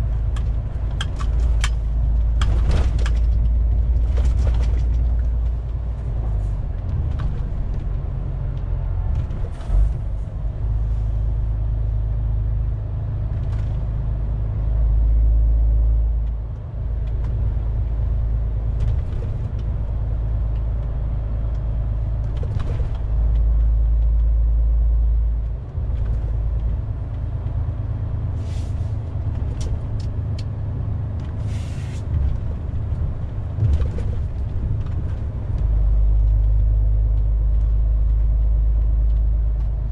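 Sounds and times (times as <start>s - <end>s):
truck engine and tyres droning: 0.0s - 39.9s
brief hisses: 31.4s - 32.0s.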